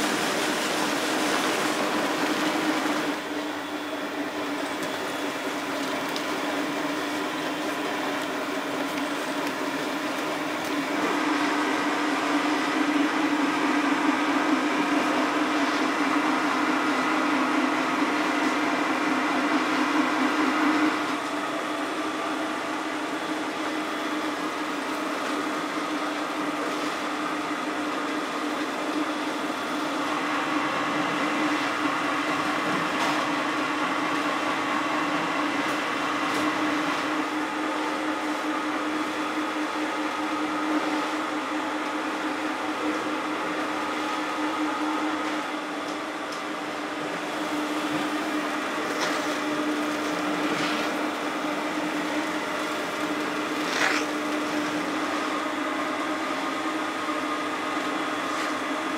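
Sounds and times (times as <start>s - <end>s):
factory machinery humming and whirring: 0.0s - 58.9s.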